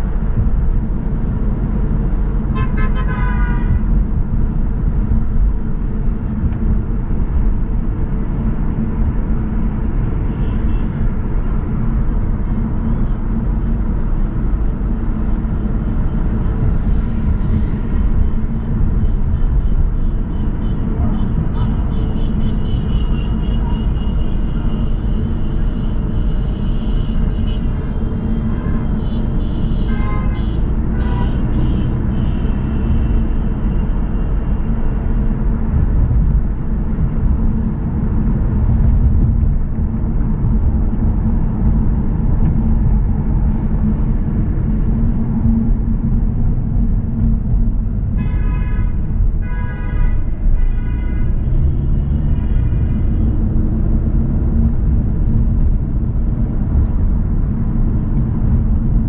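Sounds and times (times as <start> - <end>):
car driving rumble: 0.0 - 59.0.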